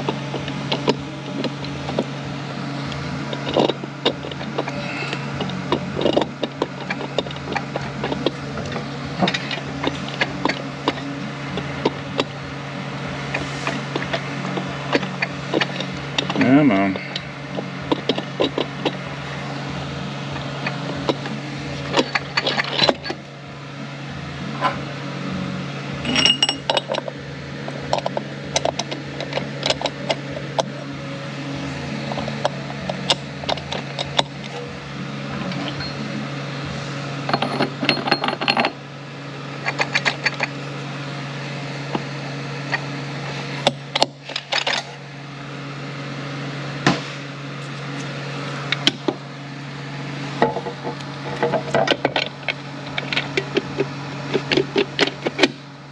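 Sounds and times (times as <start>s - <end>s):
metal parts clinking: 0.0s - 12.5s, 13.1s - 23.2s, 26.0s - 30.8s, 31.6s - 34.8s, 35.4s - 36.1s, 37.2s - 38.8s, 39.6s - 40.6s, 43.6s - 45.0s, 50.4s - 55.5s
steady low hum: 0.0s - 55.9s.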